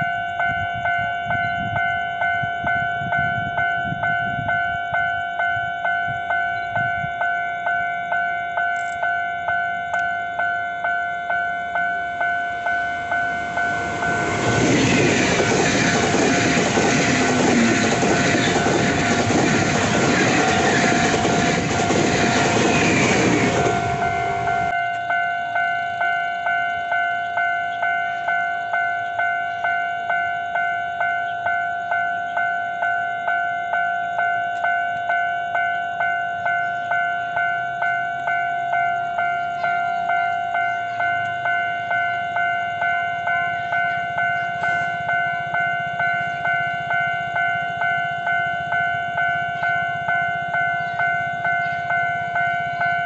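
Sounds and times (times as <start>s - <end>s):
level crossing warning bell: 0.0s - 53.0s.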